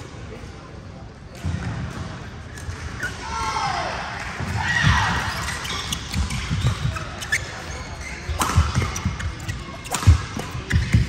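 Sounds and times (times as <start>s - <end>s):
shoes squeaking: 5.2s - 11.0s
rackets striking shuttlecock: 5.5s - 11.0s.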